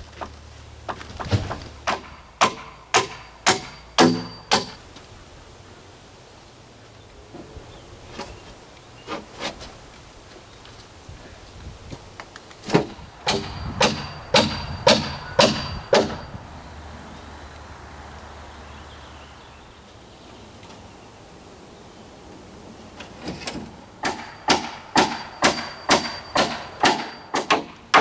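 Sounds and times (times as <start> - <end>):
hammer blows on nail: 12.7 - 16.4.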